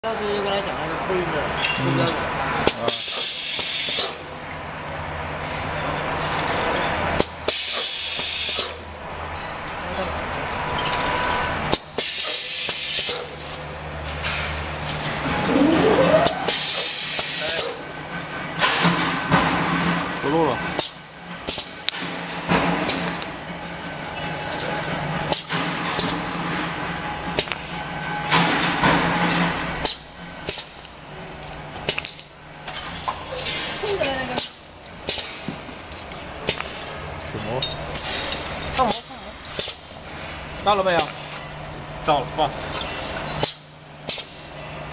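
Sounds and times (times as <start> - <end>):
machine humming: 15.0 - 17.4
machine clacks and knocks: 18.6 - 23.9.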